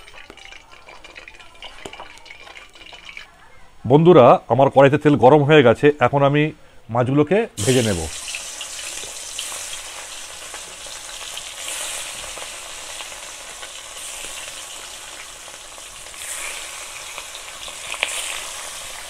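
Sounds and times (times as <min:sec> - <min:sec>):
fish sizzling in hot oil: 0:00.0 - 0:03.3, 0:07.6 - 0:19.0.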